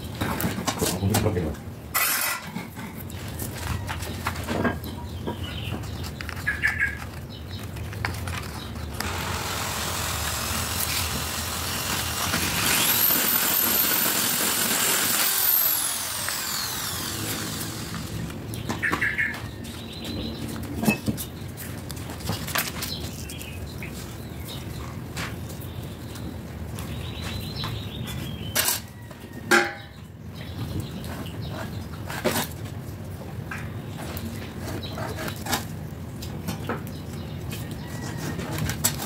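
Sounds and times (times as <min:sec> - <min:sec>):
motor whining: 0:09.0 - 0:18.4
broad rising and falling noise: 0:09.0 - 0:18.6.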